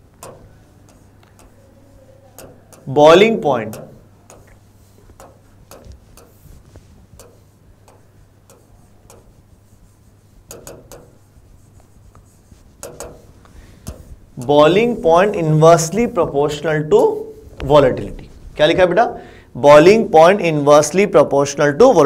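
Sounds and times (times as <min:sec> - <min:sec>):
chalk tapping on chalkboard: 0:00.0 - 0:17.5
chalk scraping: 0:00.2 - 0:17.5.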